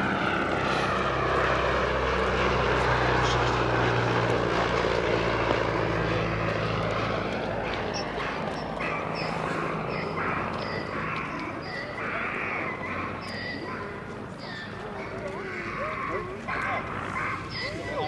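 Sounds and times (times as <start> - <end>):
propeller plane engine in flight: 0.0 - 18.0.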